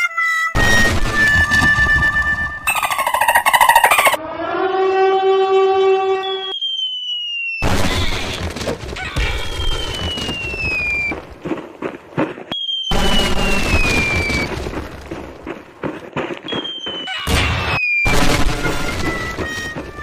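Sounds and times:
high falling whistle: 0.2s - 8.4s, 9.3s - 11.2s, 12.5s - 14.6s, 16.5s - 20.0s
explosions with crackling debris: 0.6s - 2.7s, 7.6s - 11.5s, 12.5s - 15.9s, 16.5s - 20.0s.

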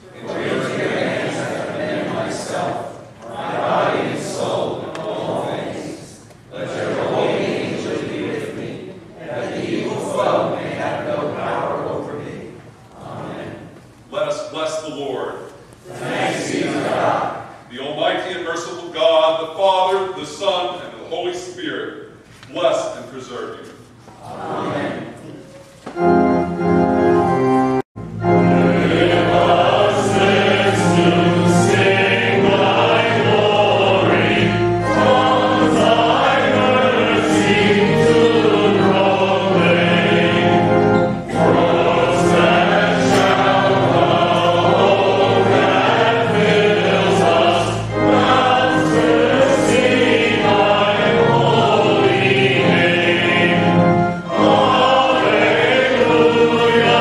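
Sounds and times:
congregation singing a hymn: 0.0s - 57.0s
sustained instrumental accompaniment: 25.8s - 57.0s.

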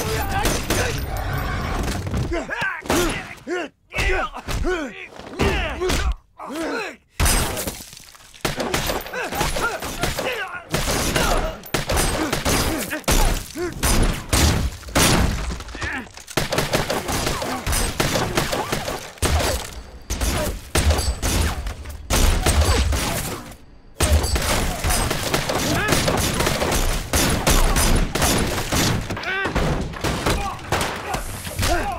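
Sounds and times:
men shouting and grunting: 0.0s - 7.8s, 8.4s - 14.3s, 29.2s - 31.9s
impacts and things breaking: 7.2s - 31.9s.

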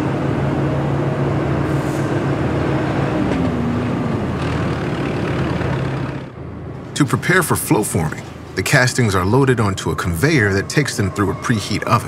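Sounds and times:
forklift motor hum: 0.0s - 7.0s.

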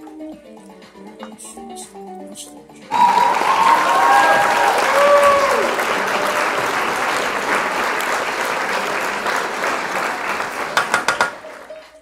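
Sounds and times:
crowd applause: 2.9s - 12.0s.

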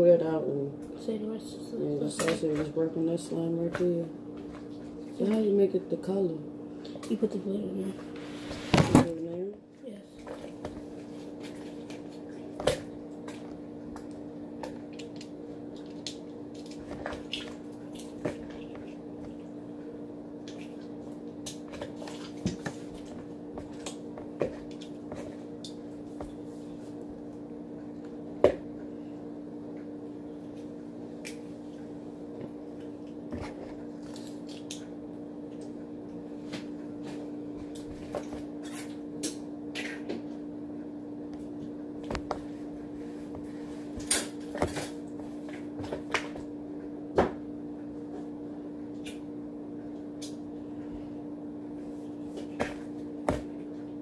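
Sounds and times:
steady low hum: 0.0s - 54.0s
slime being mixed in a bowl: 9.8s - 19.5s, 20.4s - 27.0s.

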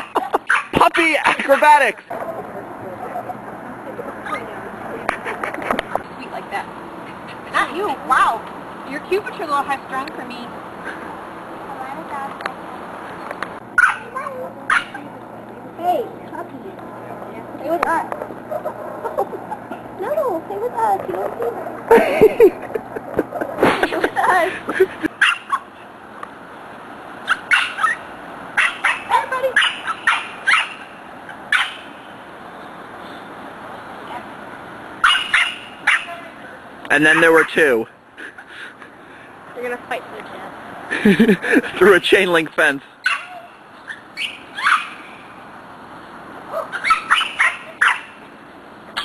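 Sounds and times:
puppies yipping: 0.0s - 1.2s, 13.8s - 15.1s, 18.4s - 19.9s, 24.7s - 25.8s, 27.2s - 32.0s, 35.0s - 36.4s, 37.0s - 37.7s, 43.0s - 45.3s, 46.5s - 48.3s
steady background hum: 0.0s - 49.0s.

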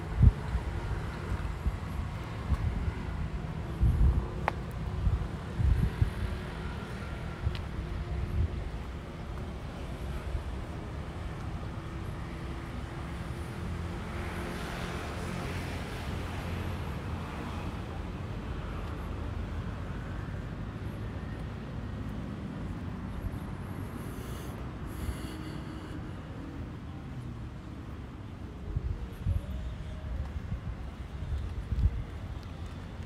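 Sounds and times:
wind noise: 0.0s - 11.3s, 28.6s - 33.0s.

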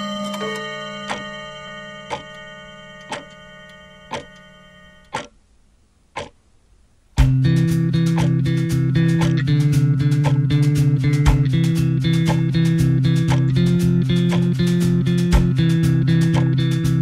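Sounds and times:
held ringing tones: 0.0s - 5.4s
clock ticking: 0.3s - 1.4s, 2.0s - 5.4s, 6.2s - 6.4s, 7.2s - 16.9s
rock band with bass and guitar: 7.2s - 17.0s.

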